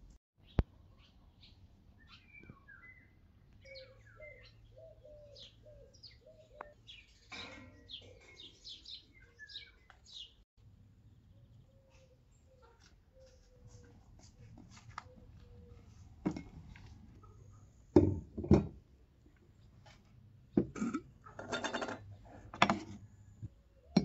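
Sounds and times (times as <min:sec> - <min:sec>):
birds chirping and calling: 0:00.4 - 0:10.4, 0:11.2 - 0:17.8.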